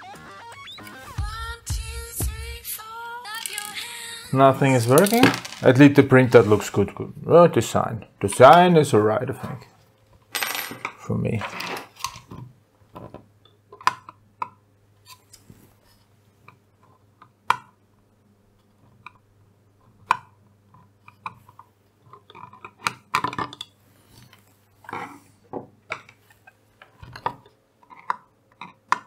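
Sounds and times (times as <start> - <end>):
faint steady hum: 0.0 - 29.0
plastic parts clattering: 3.3 - 3.8, 4.8 - 5.9
plastic parts clicking on desk: 3.3 - 3.8.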